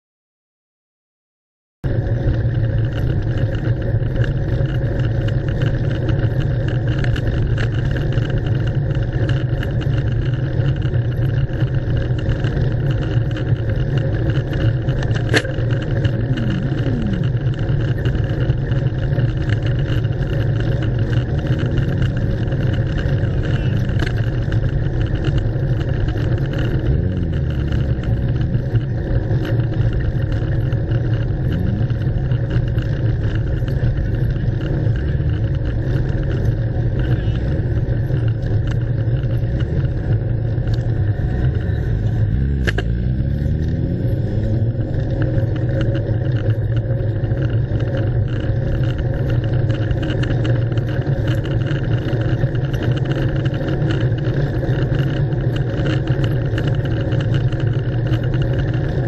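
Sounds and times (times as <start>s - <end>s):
slow car traffic: 1.8s - 59.0s
wind rumble on microphone: 1.9s - 59.0s.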